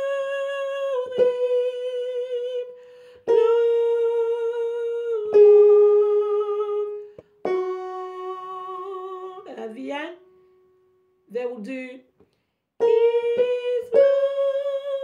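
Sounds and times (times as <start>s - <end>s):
woman singing a hymn: 0.0s - 10.3s, 11.3s - 12.0s, 12.8s - 15.0s.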